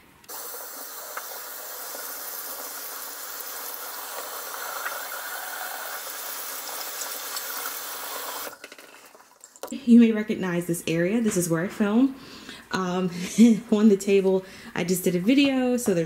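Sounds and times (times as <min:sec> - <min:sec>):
faucet running into a sink: 0:00.3 - 0:08.7.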